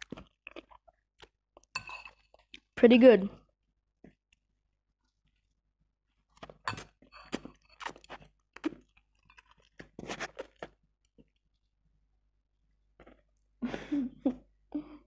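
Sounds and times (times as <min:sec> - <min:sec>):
person slurping and chewing noodles: 0:00.0 - 0:02.8, 0:06.2 - 0:11.4.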